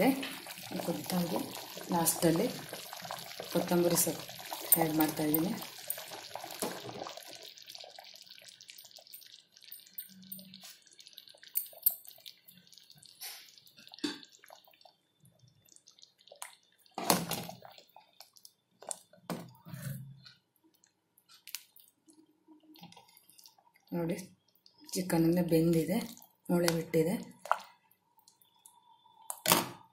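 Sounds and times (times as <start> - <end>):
stew simmering with pops: 0.0 - 29.9.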